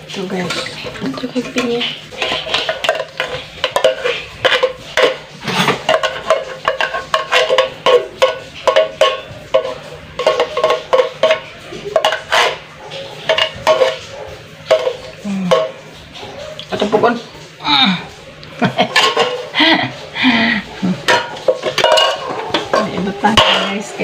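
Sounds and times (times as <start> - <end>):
spoon clinking in metal strainer: 21.1 - 24.0.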